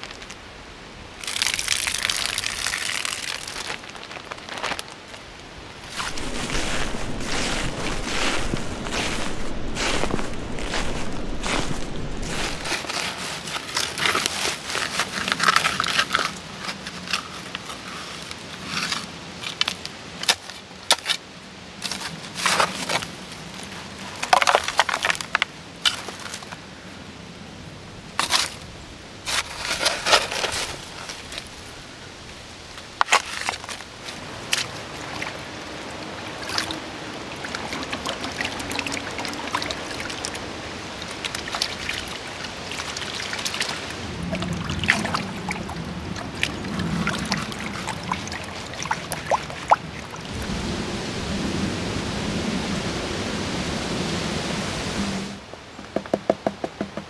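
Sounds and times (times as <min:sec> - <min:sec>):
water swirling and trickling: 0:01.2 - 0:03.9, 0:05.8 - 0:17.3, 0:33.2 - 0:55.4.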